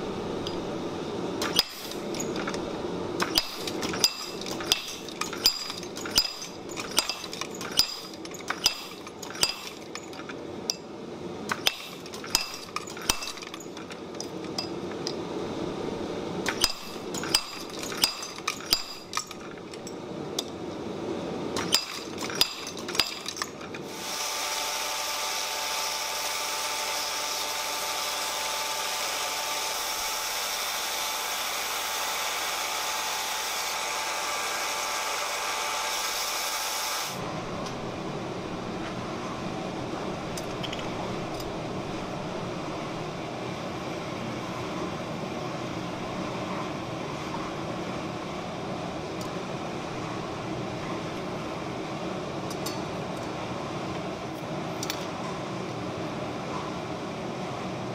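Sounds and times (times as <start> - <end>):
hammer striking metal: 3.2 - 10.1, 11.5 - 13.6, 16.5 - 19.4.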